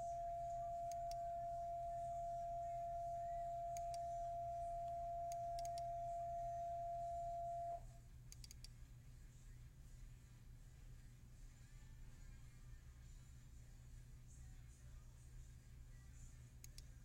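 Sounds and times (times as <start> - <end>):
steady high-pitched tone: 0.0 - 7.9
computer mouse clicks: 3.8 - 4.0, 5.3 - 5.9, 8.3 - 8.8, 16.6 - 17.0.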